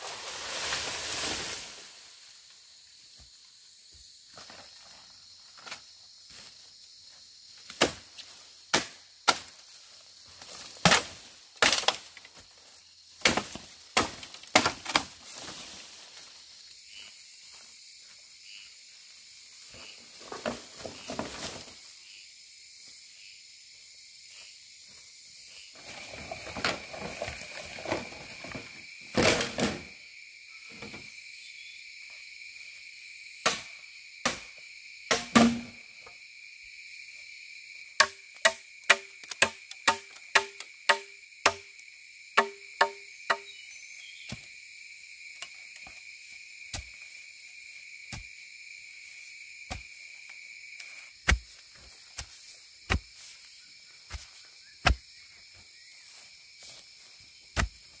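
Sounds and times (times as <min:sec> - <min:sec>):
rustling in dry leaves: 0:00.0 - 0:02.8, 0:09.7 - 0:16.7
insects chirring: 0:00.0 - 0:58.0
machete chopping bamboo: 0:07.7 - 0:08.0, 0:08.7 - 0:09.5, 0:10.8 - 0:12.1, 0:13.2 - 0:15.1, 0:33.4 - 0:34.5, 0:35.1 - 0:35.8, 0:38.0 - 0:41.7, 0:42.4 - 0:43.6, 0:51.2 - 0:51.6.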